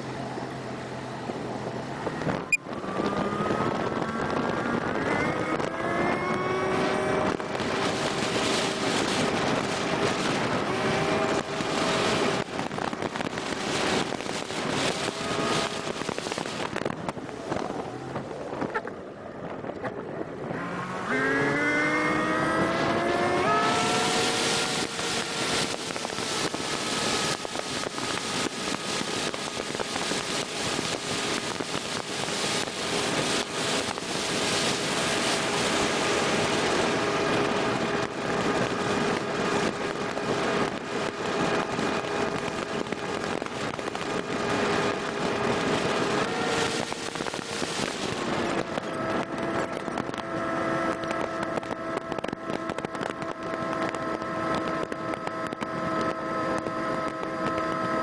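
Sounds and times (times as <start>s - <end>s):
outboard motor driving boat: 0.0s - 58.0s
wind: 0.0s - 58.0s
water rushing: 7.3s - 18.5s, 22.2s - 48.9s.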